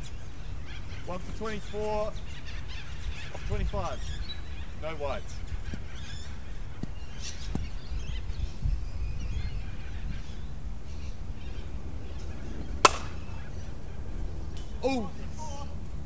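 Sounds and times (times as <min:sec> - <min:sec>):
cricket bat striking ball: 0:12.8 - 0:13.2.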